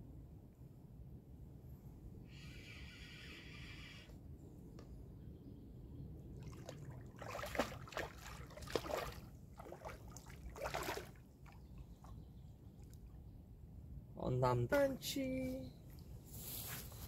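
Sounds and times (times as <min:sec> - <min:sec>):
fish thrashing and splashing: 0:06.4 - 0:11.6.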